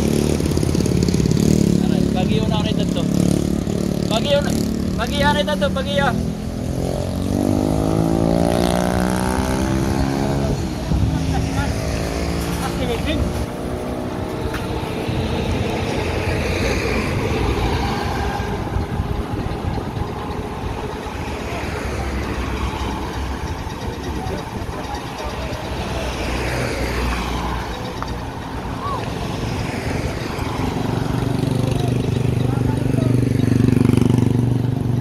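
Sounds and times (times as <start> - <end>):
voices: 1.6 - 6.3, 9.4 - 35.0
diesel truck engine running: 12.6 - 35.0.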